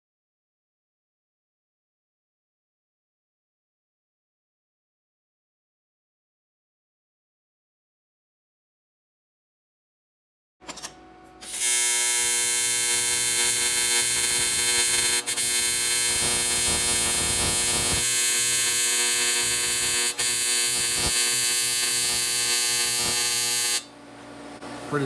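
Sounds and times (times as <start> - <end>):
welding arc buzzing: 11.4 - 23.9.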